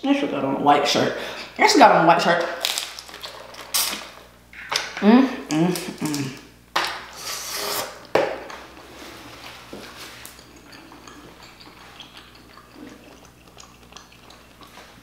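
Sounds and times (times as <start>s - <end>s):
slurping: 7.1s - 8.1s, 8.8s - 15.0s
person chewing: 7.2s - 15.0s.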